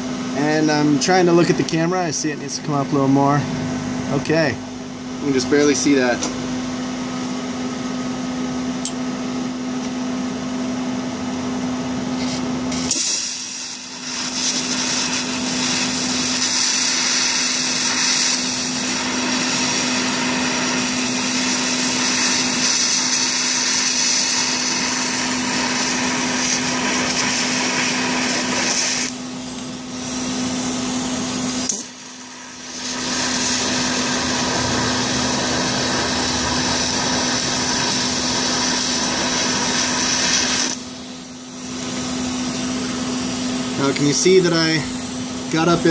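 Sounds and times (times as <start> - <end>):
steady hum: 0.0 - 45.9
welding arc hissing: 12.2 - 45.9.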